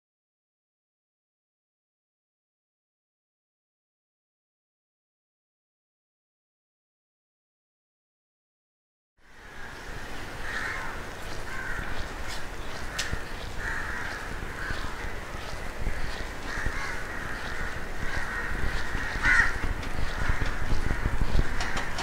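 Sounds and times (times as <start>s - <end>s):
crows cawing: 9.2s - 22.0s
outdoor background hiss: 9.2s - 22.0s.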